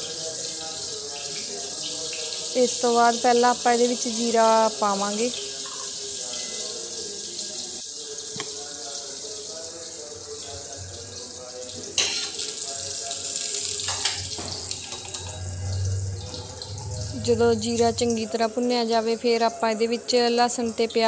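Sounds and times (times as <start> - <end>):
seeds sizzling in hot oil: 0.0 - 16.8
metal ladle scraping pan: 13.8 - 18.1.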